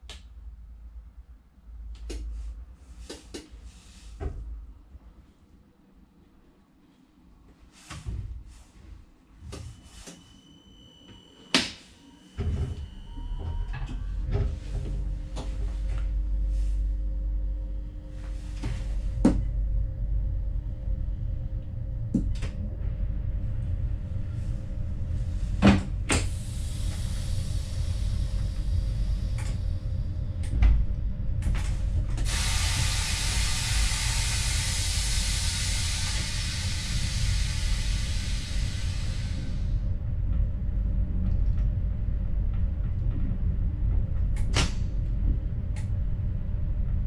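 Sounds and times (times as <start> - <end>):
train low rumble: 0.0 - 47.0
loud steady hiss: 32.2 - 39.7.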